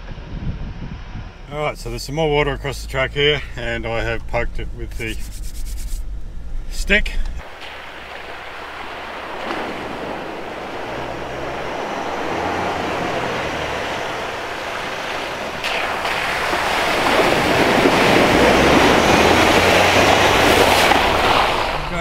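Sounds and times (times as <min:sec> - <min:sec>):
vehicle engine running: 0:00.0 - 0:22.0
tyres splashing through water: 0:07.4 - 0:22.0.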